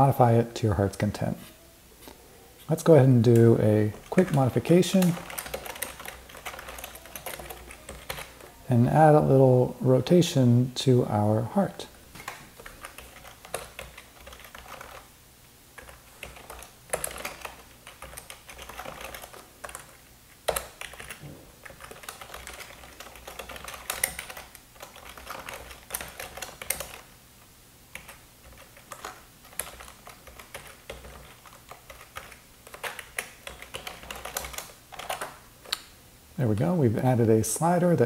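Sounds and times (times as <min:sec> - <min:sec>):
typing on computer keyboard: 0:03.3 - 0:08.5, 0:12.2 - 0:15.1, 0:15.8 - 0:27.1, 0:27.9 - 0:35.8.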